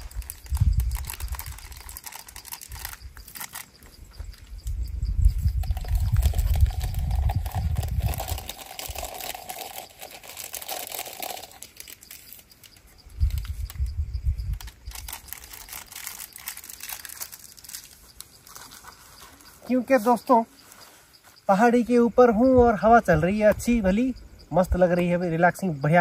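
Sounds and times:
wind buffeting microphone: 0.0s - 3.2s, 4.0s - 9.2s, 13.0s - 15.8s, 22.0s - 24.9s
small crackles and rustles: 0.0s - 4.7s, 5.6s - 13.9s, 14.5s - 21.4s.

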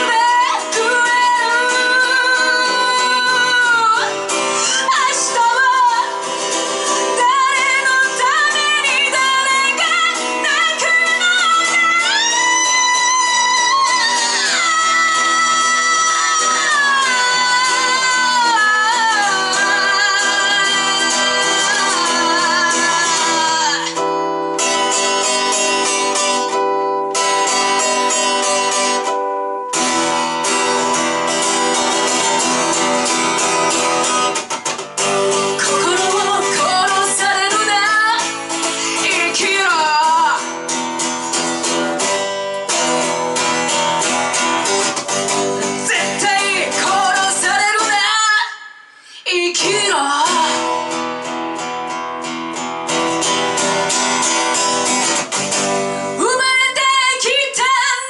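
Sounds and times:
person singing: 0.0s - 24.4s, 35.3s - 40.6s, 43.7s - 51.3s, 56.0s - 58.0s
rock band playing live: 20.5s - 37.4s, 50.6s - 56.2s.

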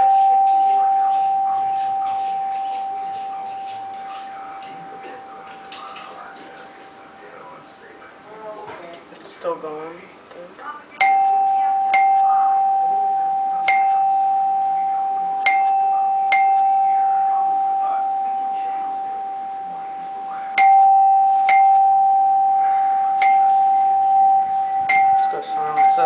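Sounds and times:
plunger striking a tone bar: 11.0s - 26.0s.

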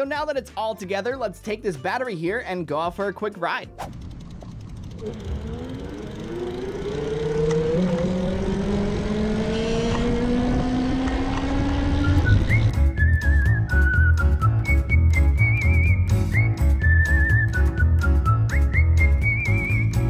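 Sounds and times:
tyres and wind rumble: 3.8s - 20.0s
electric bike motor whining: 3.9s - 12.7s.

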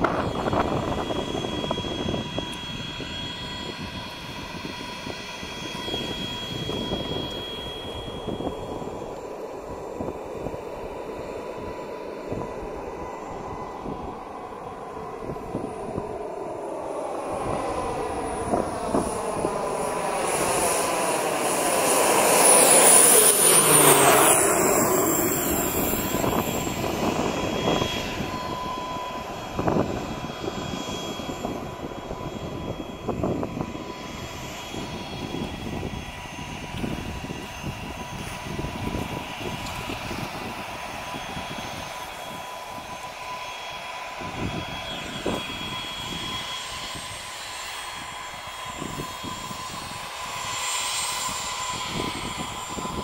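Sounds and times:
turboprop plane passing: 0.0s - 53.0s.

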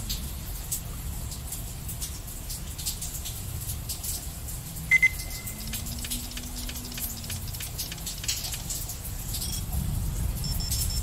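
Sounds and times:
steady rain: 0.0s - 11.0s
short high beeps: 4.9s - 5.6s.

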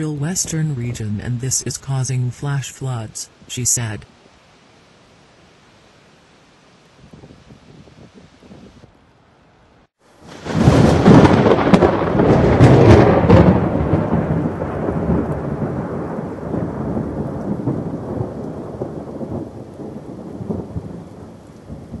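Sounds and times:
rain falling: 0.0s - 22.0s
thunder cracking and rolling: 10.2s - 22.0s.

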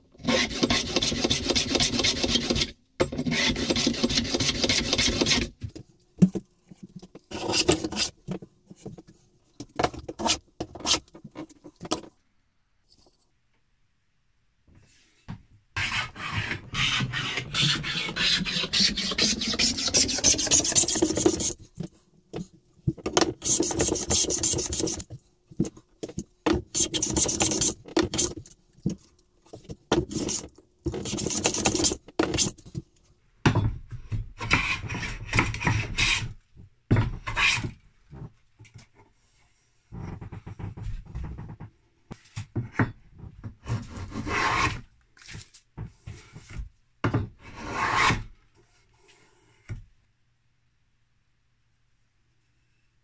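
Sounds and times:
hand tool rasping wood: 0.3s - 5.5s, 15.8s - 21.6s, 23.2s - 25.1s, 26.5s - 28.4s, 29.9s - 32.5s.

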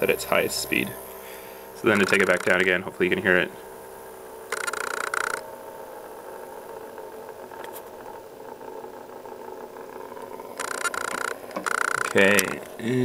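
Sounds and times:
small motor humming: 0.0s - 13.0s.

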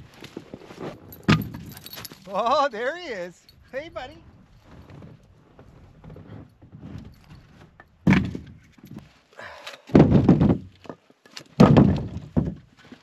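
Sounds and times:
logs thunking into plastic sled: 4.8s - 8.9s, 9.7s - 13.0s.

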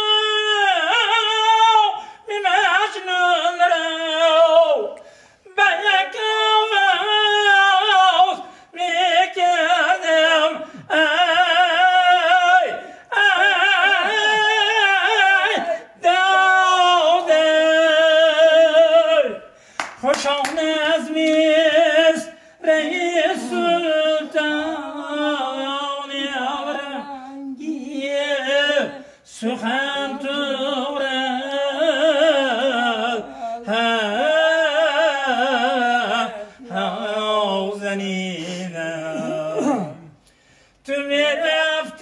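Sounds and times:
man singing unaccompanied: 0.0s - 40.2s, 40.8s - 42.0s
singer breathing: 2.0s - 2.3s, 5.0s - 5.5s, 8.4s - 8.8s, 12.8s - 13.1s, 19.5s - 20.0s, 22.3s - 22.6s, 29.0s - 29.3s, 33.2s - 33.7s, 36.4s - 36.7s, 38.3s - 38.8s, 40.1s - 40.8s.

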